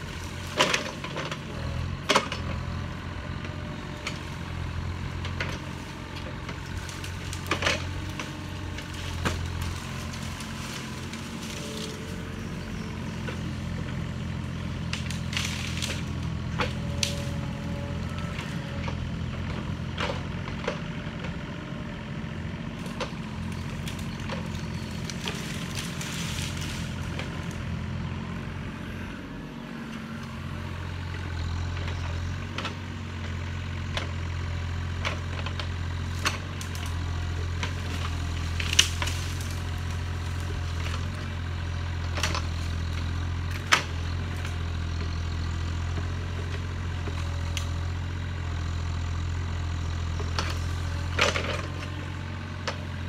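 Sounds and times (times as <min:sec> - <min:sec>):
excavator diesel engine running: 0:00.0 - 0:53.0
sharp cracks of brush: 0:22.8 - 0:27.2, 0:37.9 - 0:39.9.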